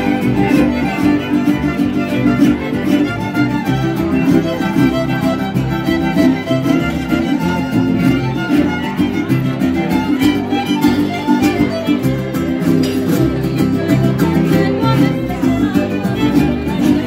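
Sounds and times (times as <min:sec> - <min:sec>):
plucked bass guitar line: 0:00.0 - 0:17.0
violins playing melody: 0:00.0 - 0:17.0.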